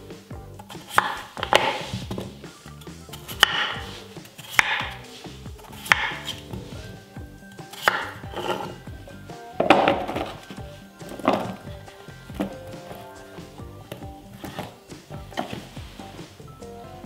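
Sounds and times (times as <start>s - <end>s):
soft background music: 0.0s - 17.0s
knife chopping on wooden board: 0.7s - 2.4s, 3.1s - 5.0s, 5.7s - 6.8s, 7.7s - 8.7s, 13.9s - 14.8s
potato chunks knocking in dish: 0.7s - 2.4s, 3.2s - 5.0s, 5.7s - 6.7s.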